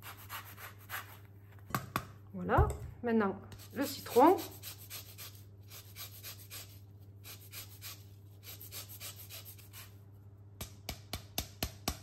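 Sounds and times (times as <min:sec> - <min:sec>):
grater scraping lemon peel: 0:03.6 - 0:10.0.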